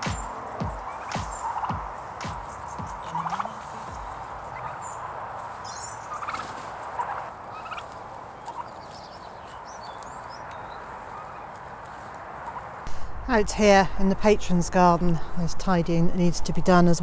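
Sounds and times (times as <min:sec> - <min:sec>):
turkeys rattling clucks: 0:00.0 - 0:11.8.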